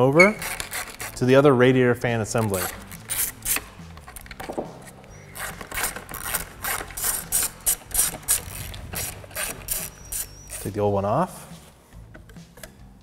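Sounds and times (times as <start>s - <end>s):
hand ratchet clicking: 0.2s - 1.3s, 2.3s - 10.7s.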